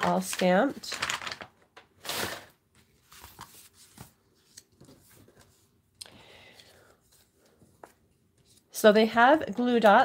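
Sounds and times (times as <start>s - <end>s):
paper rustling: 0.0s - 5.8s.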